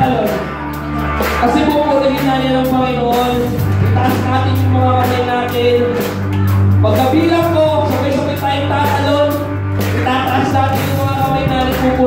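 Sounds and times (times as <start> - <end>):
drum kit with cymbals: 0.0 - 12.0
keyboard: 0.0 - 12.0
low bass notes: 0.0 - 12.0.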